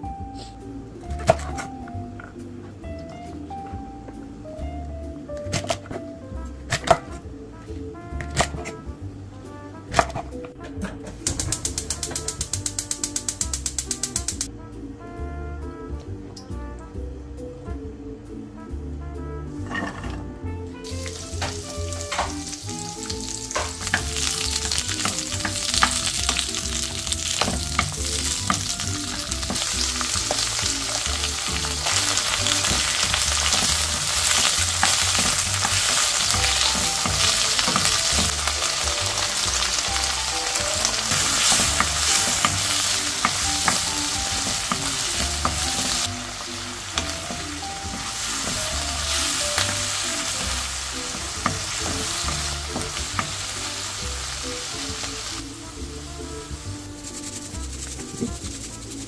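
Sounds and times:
wooden spatula scraping wok: 19.6 - 55.3, 56.1 - 59.0
vegetables sizzling in oil: 20.8 - 59.0.

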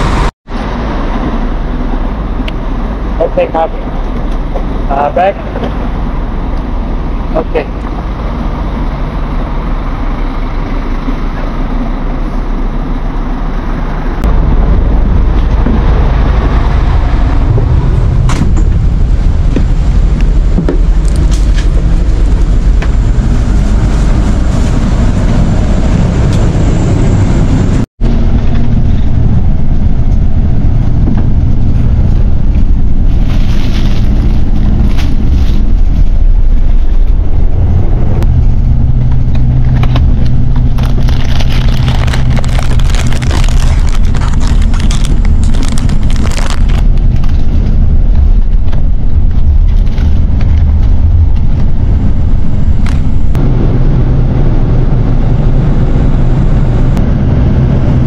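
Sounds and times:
bus engine idling: 0.0 - 46.3.

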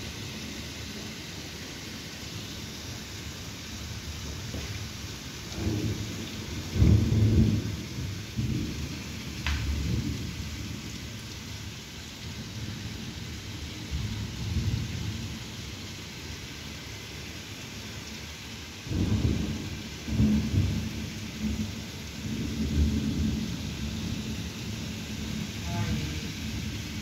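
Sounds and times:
steady rain hissing: 0.0 - 27.0
thunder rumbling: 5.5 - 11.0, 18.9 - 27.0.

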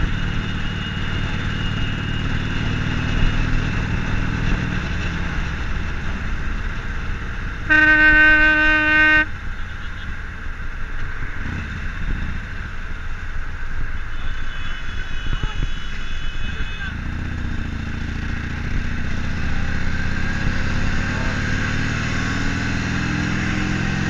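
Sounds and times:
wind noise while riding: 0.0 - 21.3
motorcycle engine running: 0.0 - 24.0
vehicle horn: 7.7 - 10.2.

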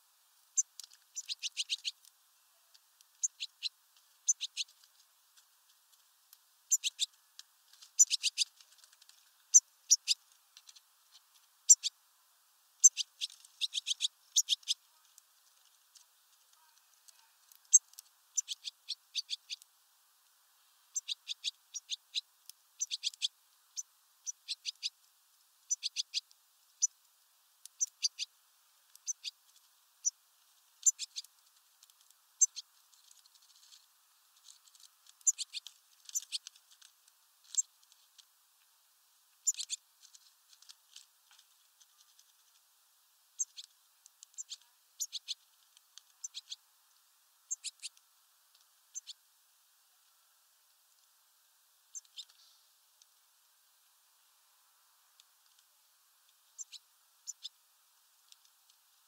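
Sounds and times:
finches ticking and chirping: 0.5 - 2.1, 3.0 - 4.9, 6.7 - 7.2, 7.8 - 12.0, 12.8 - 19.7, 20.9 - 25.0, 25.6 - 27.0, 27.6 - 33.8, 34.4 - 36.8, 37.5 - 37.9, 39.4 - 39.9, 43.4 - 46.7, 47.5 - 48.0, 48.9 - 49.2, 51.9 - 52.6, 56.3 - 57.6.

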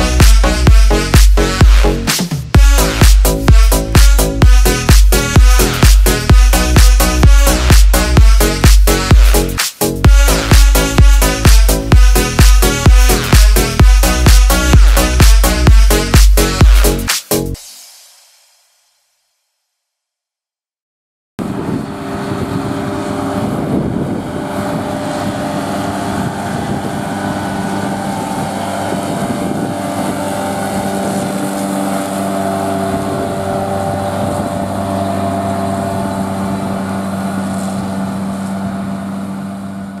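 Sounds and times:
tractor engine hum: 0.0 - 17.5, 21.4 - 40.0
disc mower whirring: 21.4 - 40.0.

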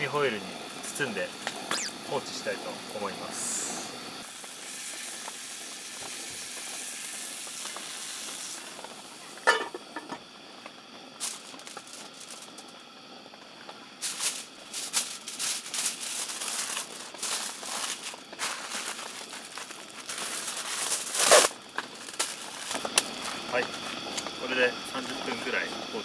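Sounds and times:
meat sizzling in a skillet: 0.0 - 13.1, 13.8 - 26.0
aluminium foil crinkling: 11.2 - 12.8, 14.0 - 24.2.

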